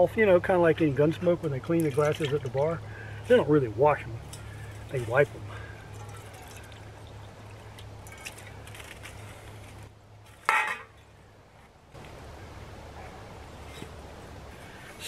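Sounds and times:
water pouring and trickling: 0:00.9 - 0:10.5
dishes clinking: 0:04.3 - 0:07.3.

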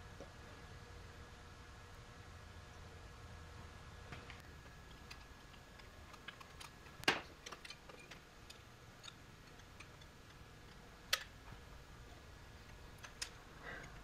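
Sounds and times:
metal parts clicking and clinking: 0:04.9 - 0:11.3.

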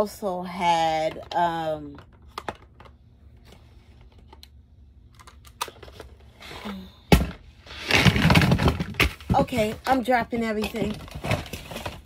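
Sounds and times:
items falling and clattering: 0:07.1 - 0:12.0.

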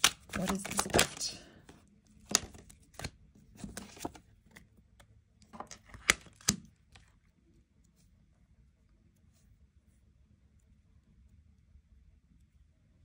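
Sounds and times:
cards clicking and tapping: 0:00.0 - 0:01.2, 0:02.2 - 0:04.2, 0:05.5 - 0:06.7.

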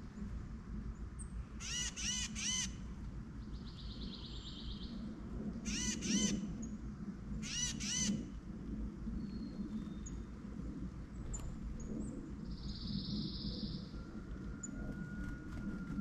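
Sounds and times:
steady low hum: 0:00.0 - 0:16.0
songbirds harsh calls: 0:01.6 - 0:02.8, 0:05.7 - 0:06.5, 0:07.4 - 0:08.3.

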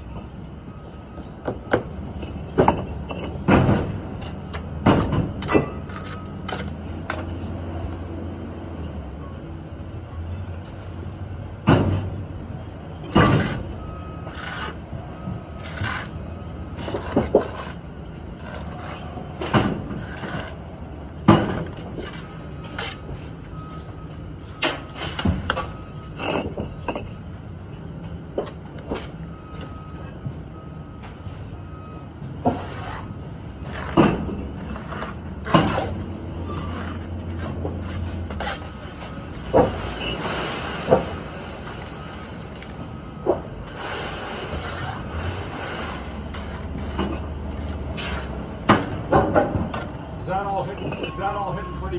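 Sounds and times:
trowel clacking and scraping bricks: 0:01.4 - 0:07.3, 0:13.1 - 0:14.9, 0:15.6 - 0:23.2, 0:32.4 - 0:38.9, 0:44.4 - 0:50.0.

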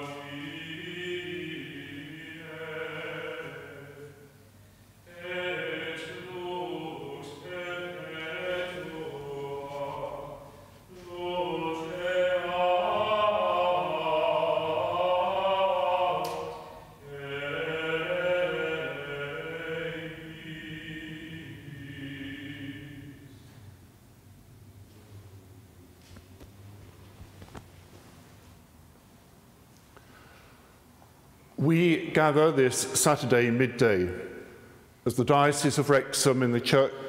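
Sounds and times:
liturgical chant: 0:00.0 - 0:23.8, 0:31.5 - 0:37.0.

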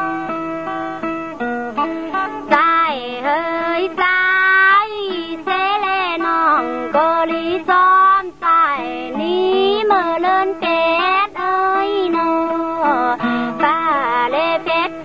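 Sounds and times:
high voice singing ornamented phrases: 0:02.5 - 0:15.0
singer breathing: 0:13.2 - 0:13.6.

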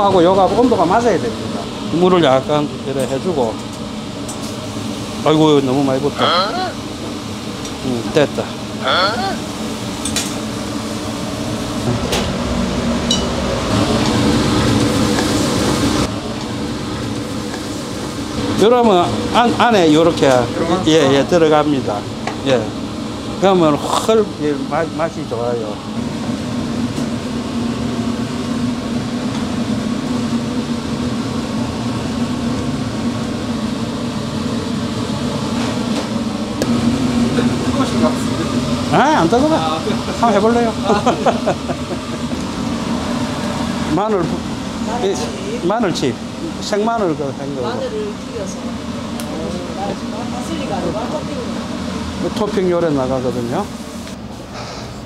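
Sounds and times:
ventilation fan drone: 0:00.0 - 0:55.0.

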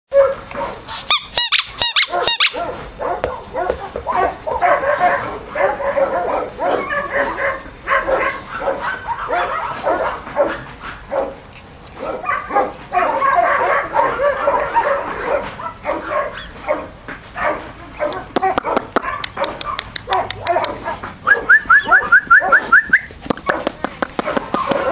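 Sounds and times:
puppies yapping and whimpering: 0:01.1 - 0:10.6.

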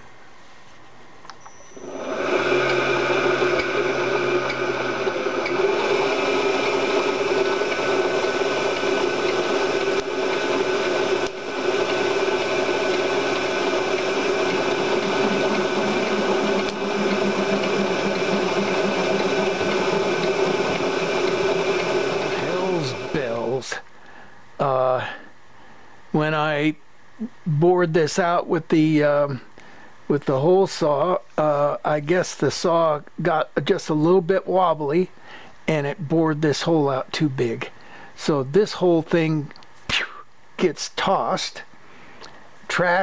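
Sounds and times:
milling machine motor whine: 0:01.3 - 0:23.8.

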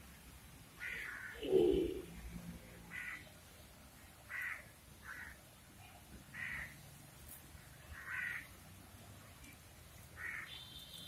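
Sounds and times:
bird calling: 0:00.8 - 0:02.1.

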